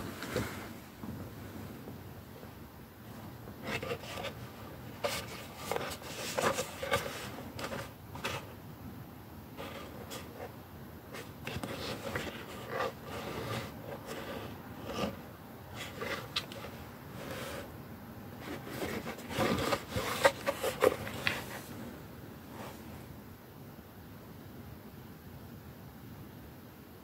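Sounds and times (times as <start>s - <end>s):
plastic rubbing against fabric: 3.1s - 8.6s, 9.6s - 17.7s, 18.4s - 23.0s.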